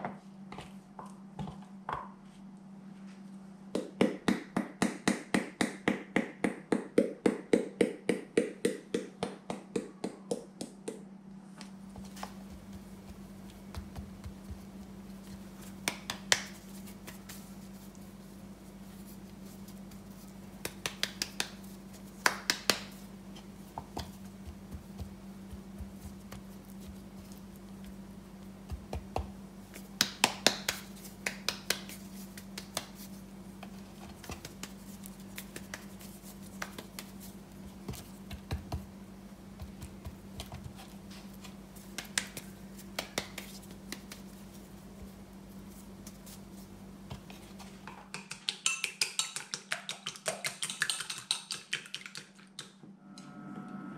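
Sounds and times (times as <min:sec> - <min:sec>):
steady low hum: 0:00.0 - 0:48.1, 0:52.8 - 0:53.9
soft pats and rustling: 0:11.6 - 0:38.9, 0:39.5 - 0:47.8.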